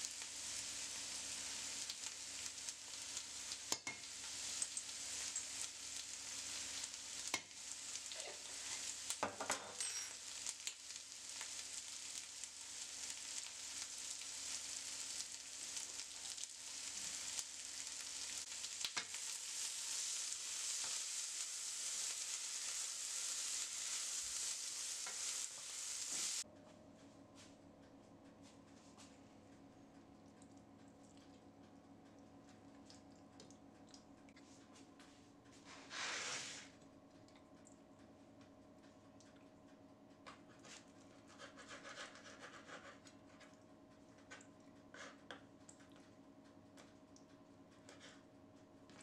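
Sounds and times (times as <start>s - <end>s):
green beans sizzling in a pan: 0.0s - 26.5s, 35.7s - 36.8s.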